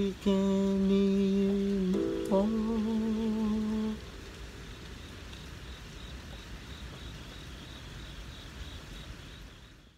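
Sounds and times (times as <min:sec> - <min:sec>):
crickets chirping: 0:00.0 - 0:09.9
faint low hiss: 0:00.0 - 0:09.9.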